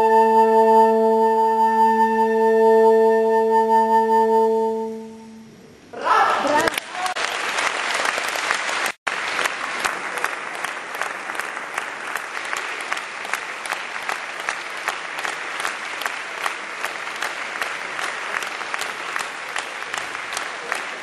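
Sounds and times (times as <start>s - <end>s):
audience applause: 6.4s - 21.0s
rhythmic clapping in unison: 6.7s - 21.0s.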